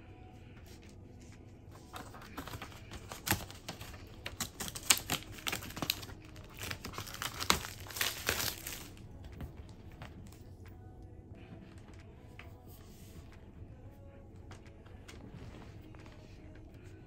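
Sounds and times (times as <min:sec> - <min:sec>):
plastic crinkling: 0:01.8 - 0:10.2.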